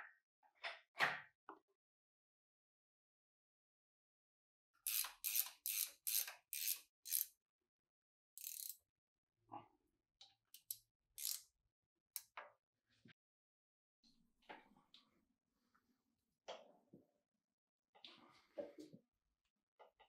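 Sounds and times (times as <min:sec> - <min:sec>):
ratchet wrench clicking: 0:04.9 - 0:07.3, 0:08.4 - 0:08.8, 0:10.6 - 0:11.4.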